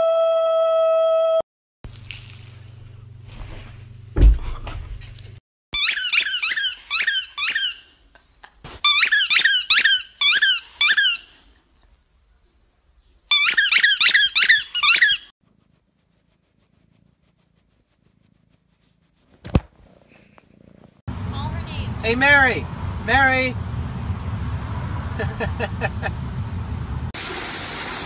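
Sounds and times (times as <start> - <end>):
dog chomping squeaky ball: 5.8 - 7.8, 8.8 - 11.2, 13.3 - 15.2.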